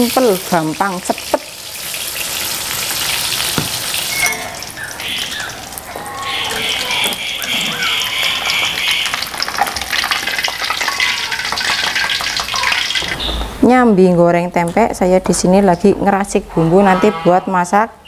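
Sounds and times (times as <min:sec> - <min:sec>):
hot oil sizzling: 0:00.0 - 0:13.6.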